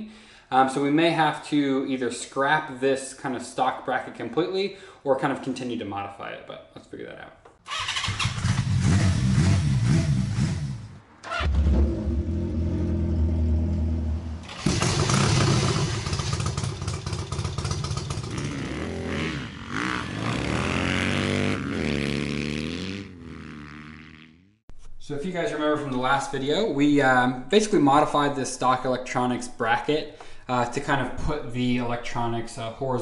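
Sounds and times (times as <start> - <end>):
motorcycle engines revving: 7.7 - 24.5.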